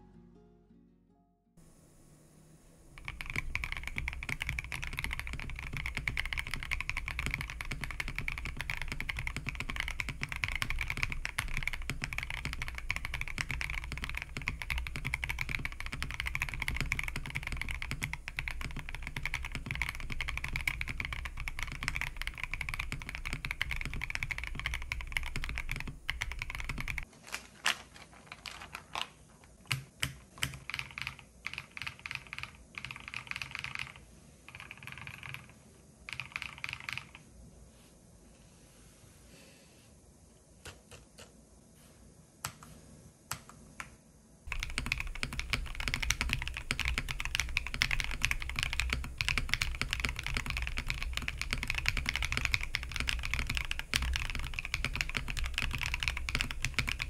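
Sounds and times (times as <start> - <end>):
fast typing on mechanical keyboard: 3.0 - 27.1, 29.6 - 37.2, 44.5 - 57.0
sharp keyboard clicks: 3.0 - 27.1, 28.3 - 37.2, 44.5 - 57.0.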